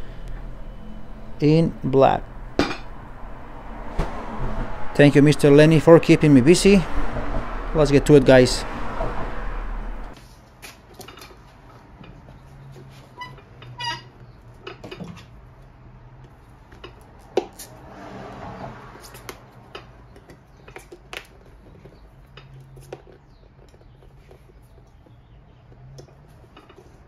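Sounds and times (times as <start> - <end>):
loud snap: 3.9 - 4.2
short squeak: 13.1 - 14.2.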